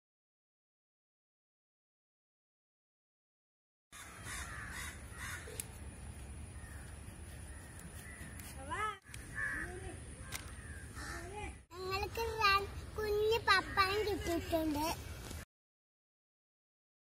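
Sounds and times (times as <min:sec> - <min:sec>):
crows cawing: 0:04.0 - 0:05.6, 0:06.6 - 0:08.4, 0:09.1 - 0:11.6.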